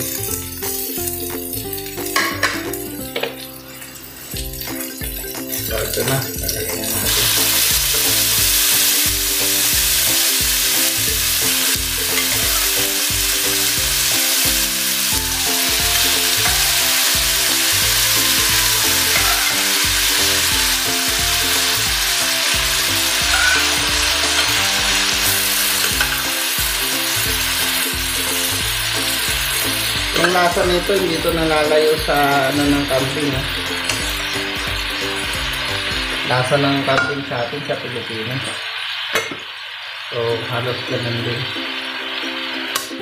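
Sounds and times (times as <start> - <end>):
meat sizzling in a pan: 0.0 - 43.0.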